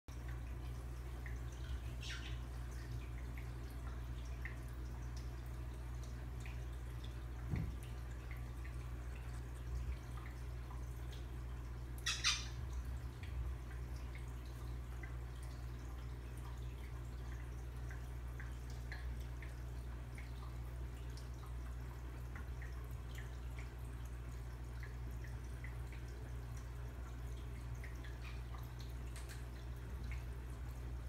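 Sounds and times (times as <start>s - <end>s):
faint ticks: 27.4s - 30.4s.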